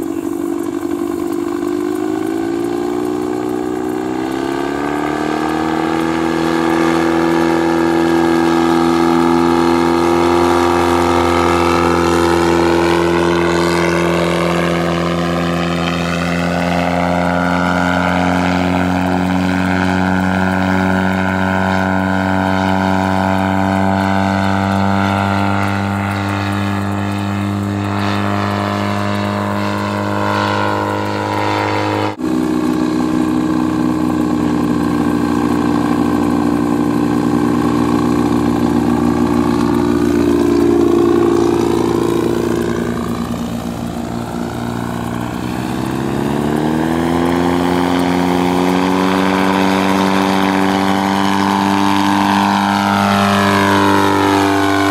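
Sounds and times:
propeller: 0.0 - 54.9
two-stroke aircraft engine: 0.0 - 54.9.

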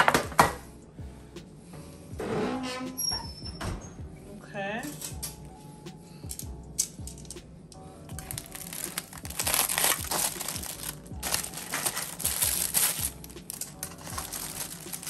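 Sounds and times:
aluminium foil crinkling: 8.1 - 15.0.

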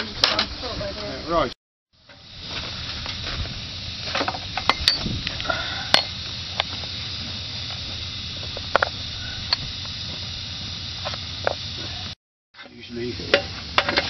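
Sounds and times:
steam hissing: 0.0 - 12.2
metallic clinks and knocks: 4.1 - 5.1.

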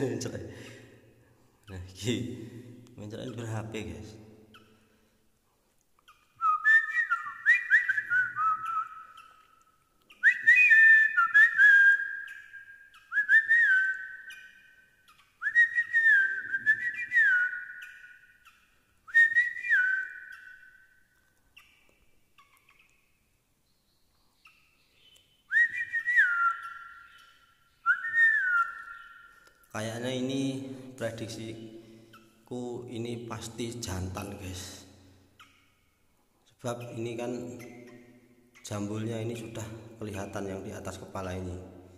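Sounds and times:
recorded bird calls from phone: 6.1 - 13.2, 13.9 - 18.8, 19.5 - 21.0, 23.7 - 30.0.

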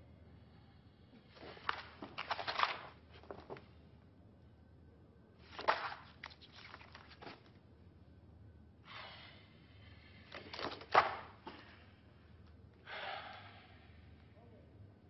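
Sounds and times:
paper rustling: 1.4 - 3.6, 5.4 - 7.6
paper sheet flapping: 1.4 - 3.6, 5.4 - 7.6, 10.4 - 11.6.

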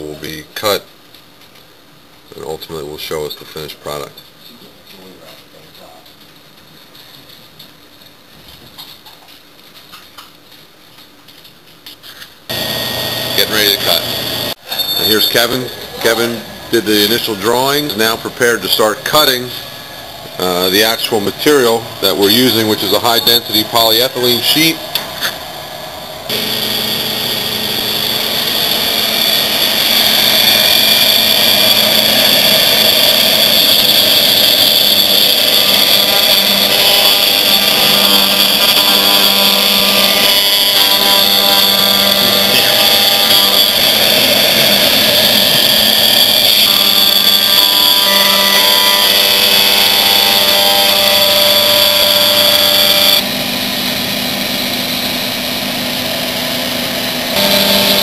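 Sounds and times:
cutting noise: 12.5 - 25.5, 26.2 - 58.0
router spindle high-pitched whine: 12.5 - 58.0.

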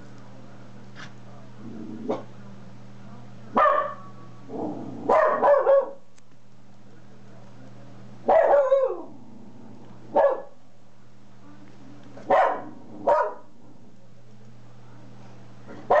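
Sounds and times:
faint low hum: 0.0 - 16.0
dog barking: 2.1 - 2.3, 3.5 - 4.1, 5.0 - 6.0, 8.3 - 9.1, 10.1 - 10.6, 12.2 - 13.5, 15.7 - 16.0.

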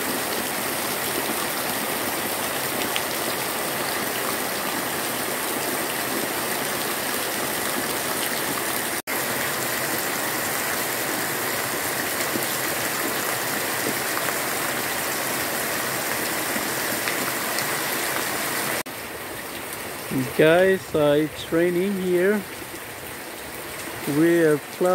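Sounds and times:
heavy rain falling: 0.0 - 24.9.

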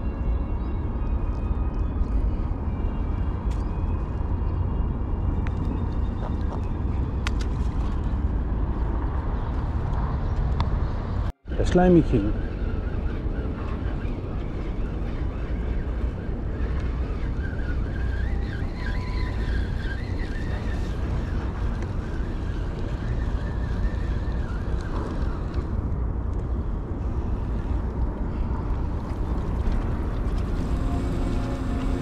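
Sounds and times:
wind buffeting microphone: 0.0 - 32.0
surf noise: 28.8 - 32.0.

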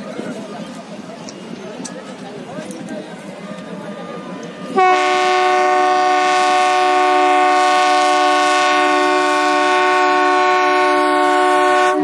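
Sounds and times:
locomotive air horn chord: 4.8 - 12.0.

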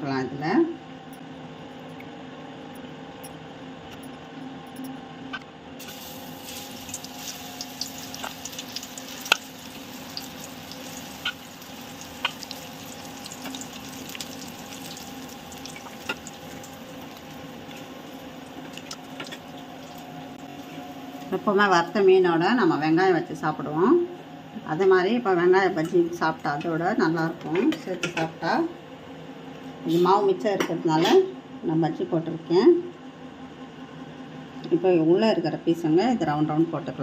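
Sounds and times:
crackles and pops in hot oil: 5.8 - 20.0
oil bubbling in deep frying: 5.8 - 20.5.

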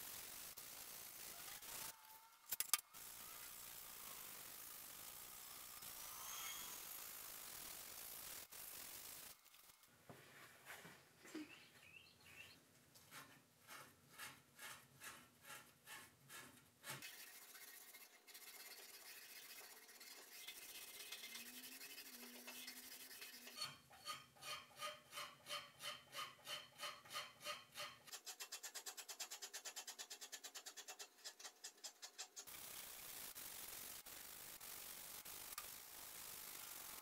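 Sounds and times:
abrasive pad scrubbing metal: 17.0 - 28.0.

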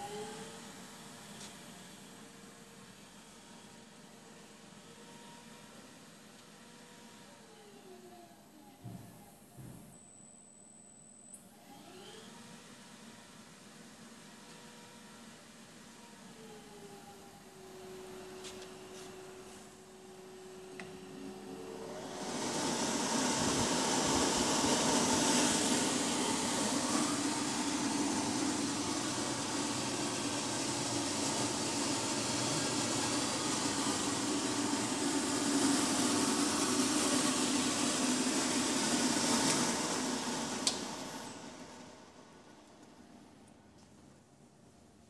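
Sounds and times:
blower rushing air: 21.1 - 42.2.

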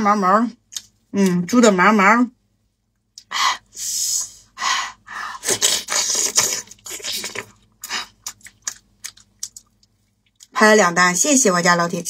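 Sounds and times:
person chewing and slurping: 5.4 - 10.5.

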